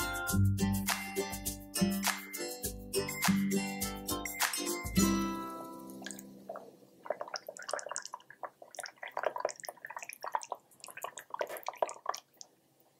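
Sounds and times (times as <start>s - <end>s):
gravy pouring and splashing: 5.5s - 12.9s.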